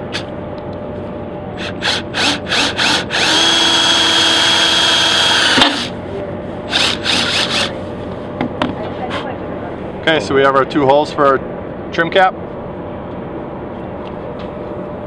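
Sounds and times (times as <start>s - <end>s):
cordless drill boring: 1.6s - 5.9s, 6.7s - 7.7s.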